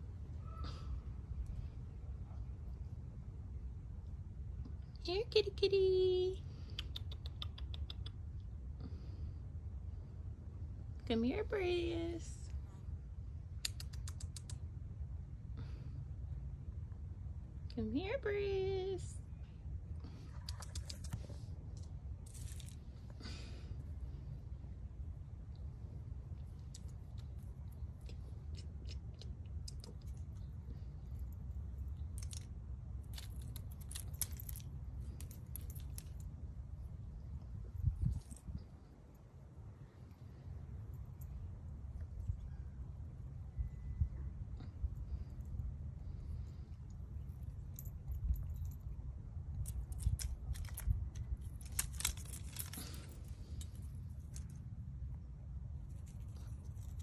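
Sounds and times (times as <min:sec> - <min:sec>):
low steady rumble: 0:00.0 - 0:57.0
light clicks and rattles: 0:20.1 - 0:23.4, 0:26.4 - 0:39.2, 0:44.6 - 0:54.8, 0:55.8 - 0:57.0
gravel crunching: 0:22.2 - 0:23.7, 0:31.1 - 0:36.3, 0:49.6 - 0:54.6.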